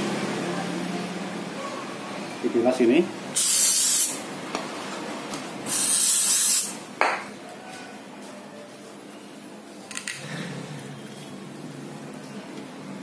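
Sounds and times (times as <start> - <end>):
aerosol can spraying: 3.4 - 4.2, 5.7 - 6.8.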